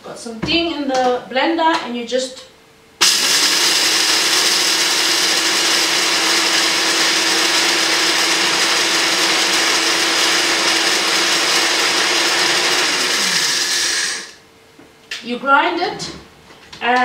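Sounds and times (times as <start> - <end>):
grain rattling in blender: 3.0 - 14.3
blender motor whirring: 3.0 - 14.4.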